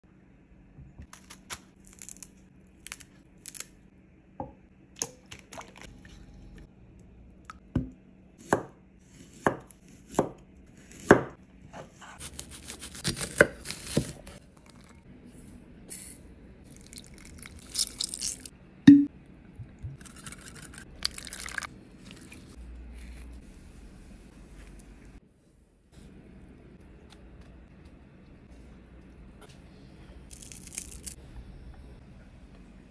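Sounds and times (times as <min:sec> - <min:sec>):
knife chopping on wooden board: 0:07.8 - 0:14.3.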